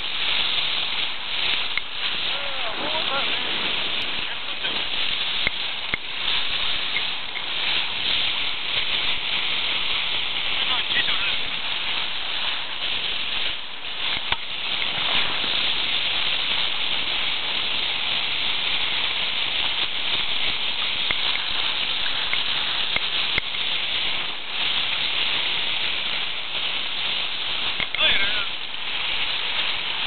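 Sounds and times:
sea water hissing: 0.0s - 30.0s
wind hissing: 0.0s - 30.0s
faint ticks: 14.1s - 14.9s, 21.0s - 21.5s, 22.2s - 23.6s.

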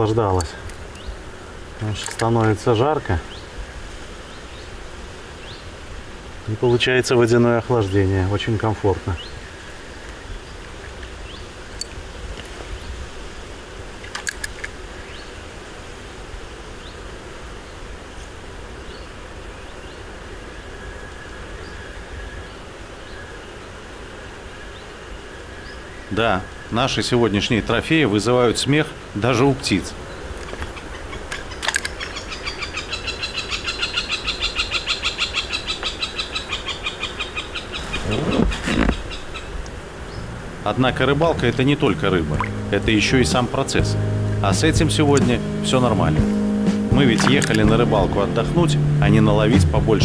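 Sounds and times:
sharp clicks: 1.8s - 2.6s, 47.1s - 47.7s
bird calling repeated notes: 30.4s - 44.5s
steady low rumble: 39.7s - 50.0s.

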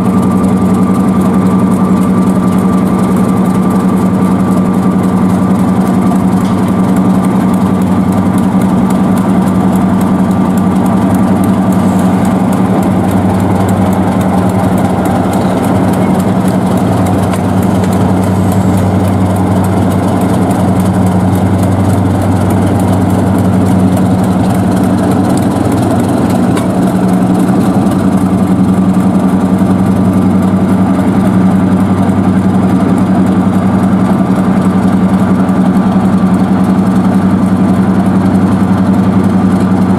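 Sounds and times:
diesel engine humming: 0.0s - 39.9s.

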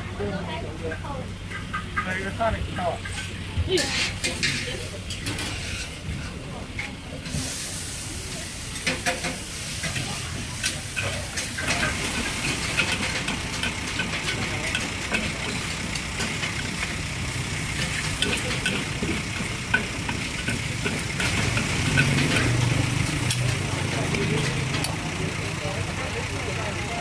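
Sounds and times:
metal spatula scraping a wok: 3.0s - 6.4s, 17.6s - 23.6s
noodles sizzling in a wok: 7.2s - 25.9s.

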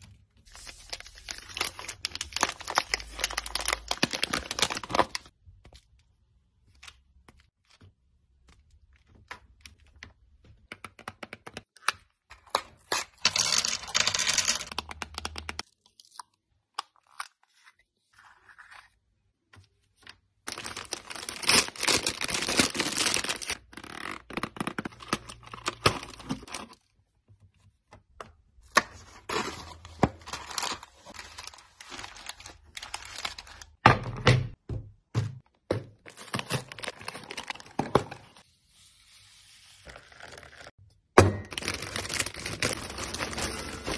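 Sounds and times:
plastic packaging crinkling: 0.6s - 5.3s, 20.5s - 23.8s, 29.3s - 33.8s, 41.5s - 43.9s.

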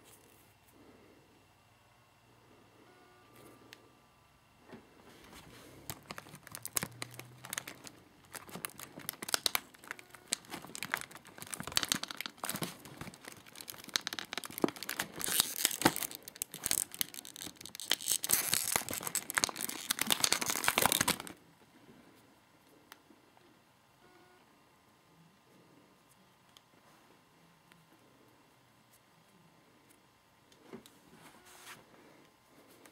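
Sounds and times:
plastic packaging crinkling and tearing: 5.3s - 21.4s.

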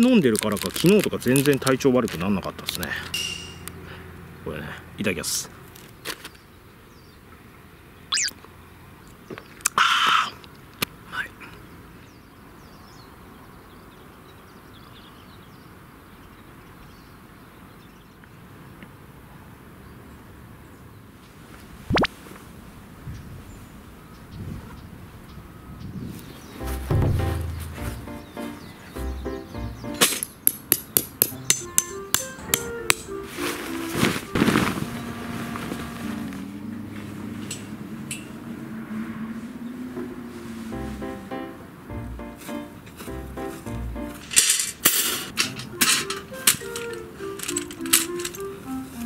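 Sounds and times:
road traffic hum: 0.0s - 49.0s
hammer striking metal tent peg: 3.2s - 3.6s, 26.9s - 28.4s, 30.0s - 33.1s
small birds chirping: 5.9s - 18.8s, 23.1s - 32.9s
canvas rustling: 33.0s - 37.4s.

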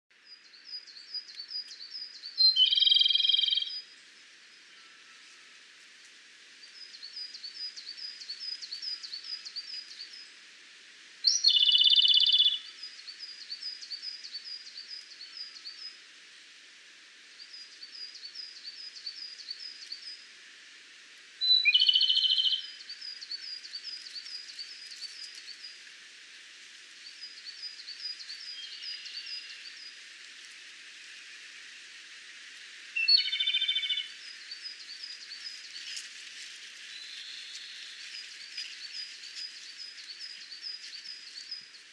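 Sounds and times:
bird song with trill: 0.2s - 3.9s, 11.2s - 16.0s, 21.4s - 25.8s, 27.0s - 30.0s, 33.0s - 36.1s, 36.8s - 41.9s
steady hiss: 0.2s - 41.9s.

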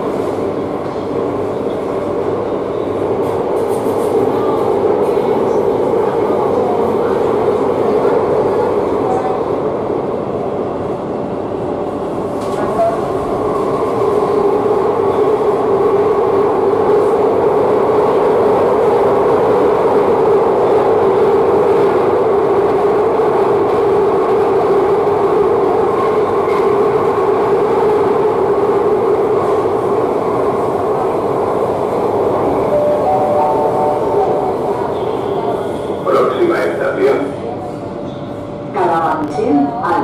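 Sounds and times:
train rumble inside carriage: 0.0s - 40.0s
three-note chime: 32.8s - 34.5s.

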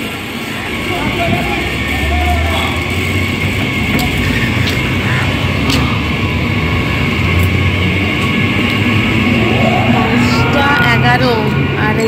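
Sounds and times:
vehicle rumble: 0.0s - 12.0s.

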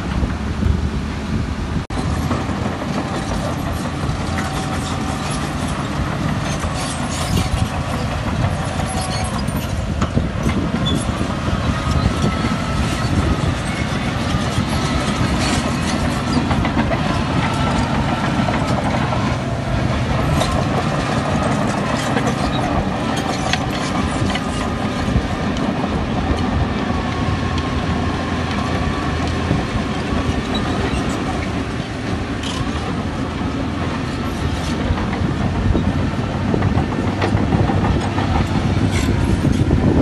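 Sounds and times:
diesel engine drone: 0.0s - 40.0s.

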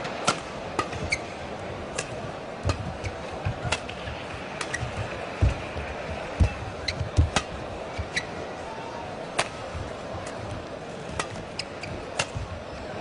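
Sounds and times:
crowd murmur: 0.0s - 13.0s
racket hitting shuttlecock: 0.2s - 1.2s, 1.9s - 8.3s, 9.3s - 12.6s
footfalls on court floor: 2.6s - 8.2s.

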